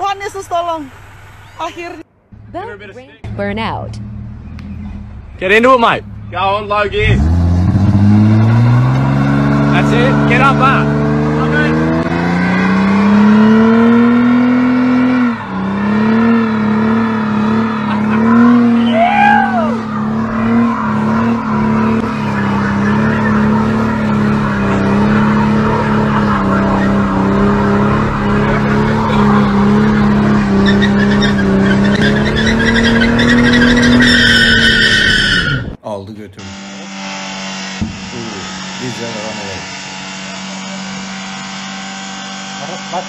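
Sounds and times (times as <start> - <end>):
engine revving high: 2.6 - 35.8, 36.4 - 43.0
tyres spinning and squealing: 14.0 - 35.8.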